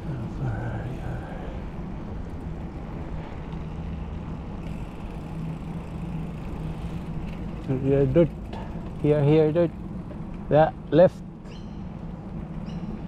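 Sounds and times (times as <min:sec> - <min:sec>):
bike tyres rolling on wet paving: 0:03.4 - 0:11.0.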